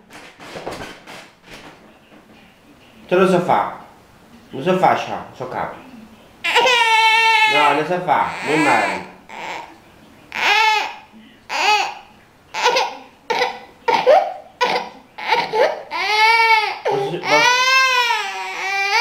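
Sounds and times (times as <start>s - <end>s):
toddler crying: 6.4s - 13.6s, 14.6s - 19.0s.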